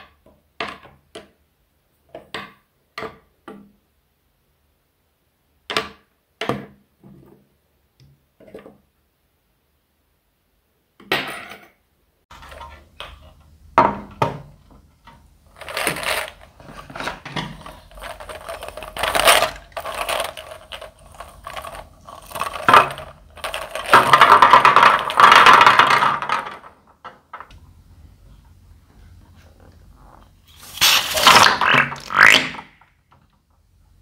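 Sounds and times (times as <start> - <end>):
plastic eggs rattling in net bag: 15.5 - 26.7, 30.6 - 32.4
plastic eggs clattering into tray: 15.5 - 27.0, 30.6 - 32.4.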